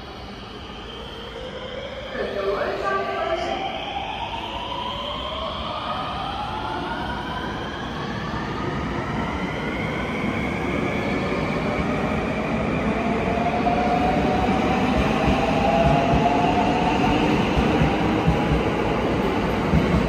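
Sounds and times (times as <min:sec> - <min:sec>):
train wheels rumbling: 0:13.5 - 0:20.0.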